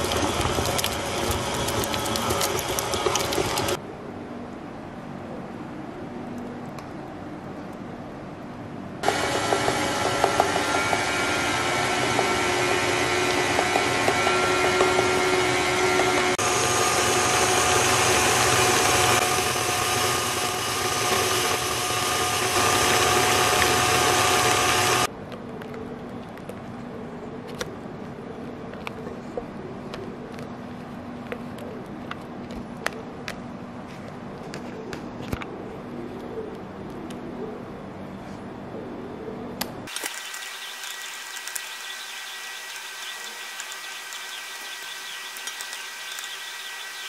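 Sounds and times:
stand mixer motor whining: 0:00.0 - 0:03.8, 0:09.0 - 0:25.1, 0:39.9 - 0:47.0.

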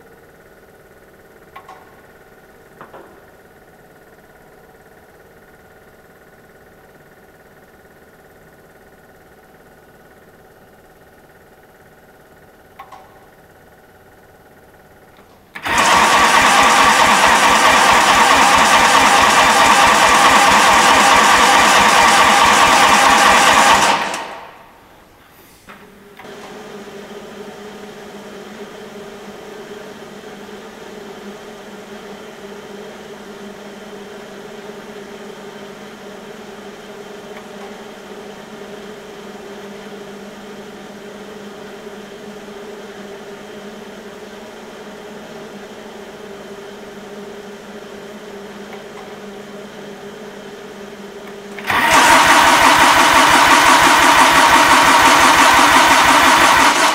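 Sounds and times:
click: 0:01.5 - 0:01.9, 0:12.8 - 0:13.2, 0:15.1 - 0:15.6, 0:37.3 - 0:37.8, 0:48.7 - 0:49.1
diesel starter cranking: 0:15.6 - 0:24.5, 0:51.5 - 0:56.9.

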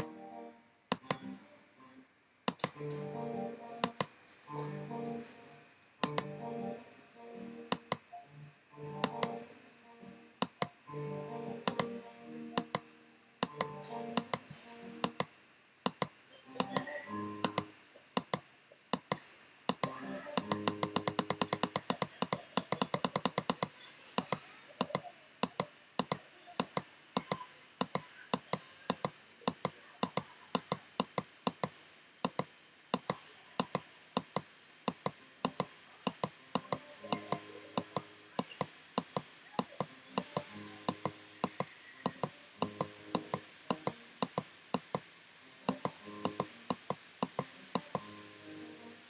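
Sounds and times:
sharp computer clicks: 0:00.9 - 0:01.3, 0:02.5 - 0:03.1, 0:03.8 - 0:05.4, 0:06.0 - 0:06.4, 0:07.6 - 0:08.2, 0:09.0 - 0:09.4, 0:10.4 - 0:10.8, 0:11.6 - 0:12.0, 0:12.6 - 0:15.3, 0:15.9 - 0:45.1, 0:45.7 - 0:48.1.

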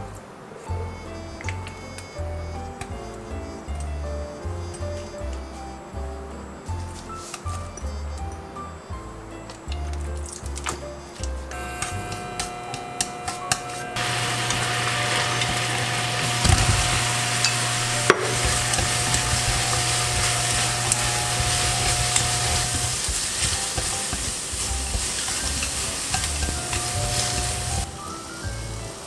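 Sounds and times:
sauce boiling and sizzling: 0:14.0 - 0:29.0
chopsticks clicking against pan: 0:16.8 - 0:27.8.

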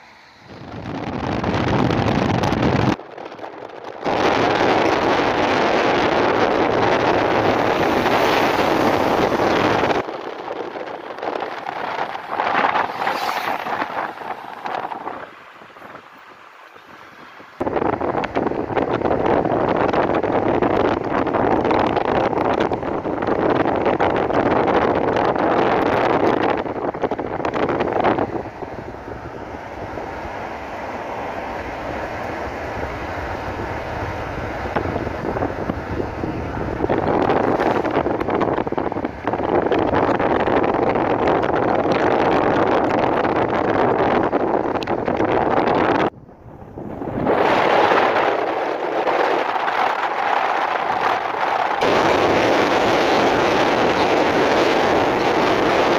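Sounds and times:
car road noise: 0:00.0 - 0:55.9
wind buffeting microphone: 0:00.0 - 0:55.9
car passing close: 0:04.1 - 0:19.6, 0:25.8 - 0:39.7.

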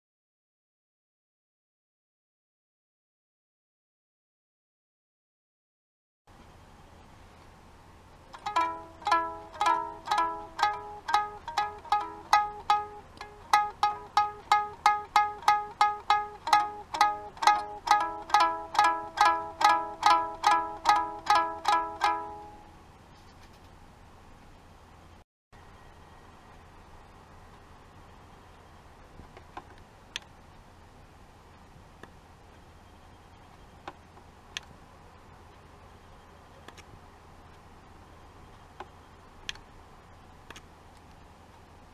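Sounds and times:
faint steady hum: 0:06.3 - 0:41.9
toy ukulele notes plucked: 0:08.3 - 0:22.8.

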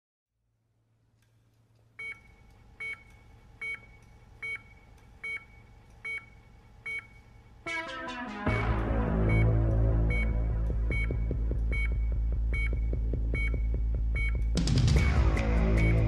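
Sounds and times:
low electronic hum: 0:00.5 - 0:16.0
music: 0:07.7 - 0:16.0
short electronic beeps: 0:09.2 - 0:15.2.

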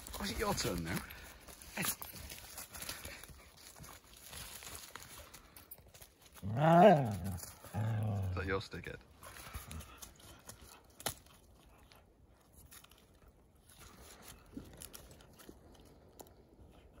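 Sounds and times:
crunching and rustling in dry leaves: 0:00.0 - 0:08.3, 0:09.2 - 0:17.0
sticks cracking and snapping: 0:10.0 - 0:16.7.

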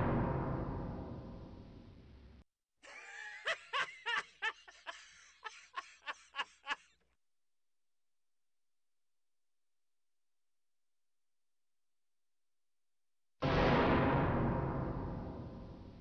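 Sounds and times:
noisy sound effect: 0:00.0 - 0:02.4, 0:13.4 - 0:16.0
snickering cartoon laugh: 0:02.8 - 0:07.0.

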